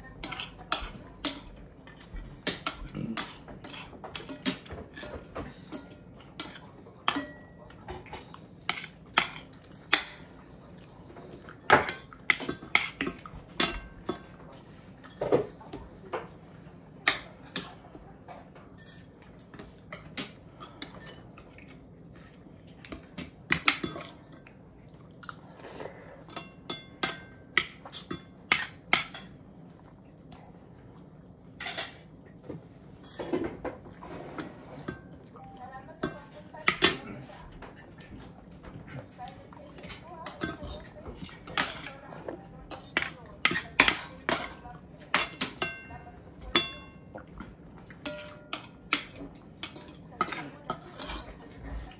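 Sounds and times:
cutlery clinking on plates: 0:00.2 - 0:10.3, 0:11.4 - 0:14.4, 0:26.2 - 0:29.4, 0:33.0 - 0:38.1, 0:47.9 - 0:51.9.

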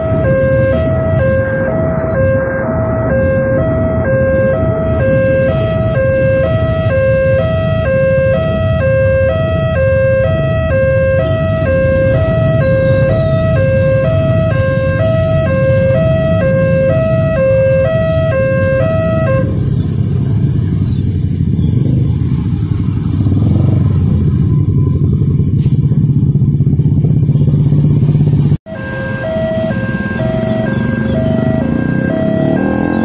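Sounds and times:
two-note crossing alarm: 0:00.0 - 0:19.6, 0:28.7 - 0:33.0
car engines: 0:00.0 - 0:33.0
motorcycle engines: 0:00.0 - 0:33.0.

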